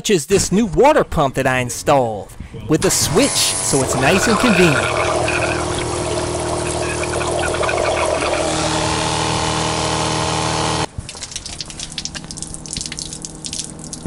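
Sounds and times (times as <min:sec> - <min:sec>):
water pump humming: 0:02.8 - 0:14.0
water splashing onto concrete: 0:10.9 - 0:14.0.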